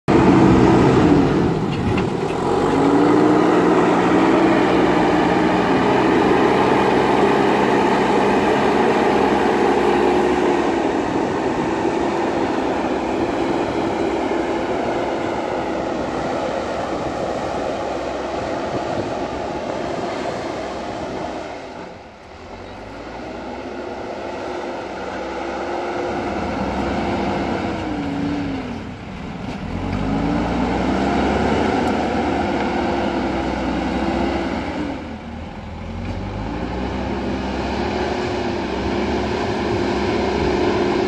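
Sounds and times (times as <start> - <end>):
diesel engine under load: 0.0 - 41.0.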